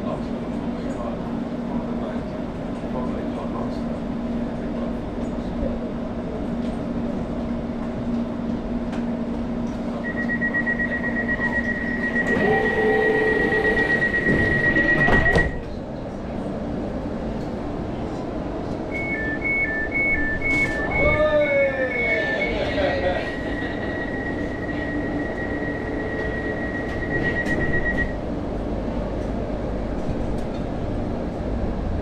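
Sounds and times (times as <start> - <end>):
train humming: 0.0 - 32.0
door warning beeps: 10.0 - 15.6, 18.9 - 21.2, 21.8 - 28.2
train doors sliding shut: 12.0 - 15.8, 20.4 - 21.2, 24.7 - 28.1.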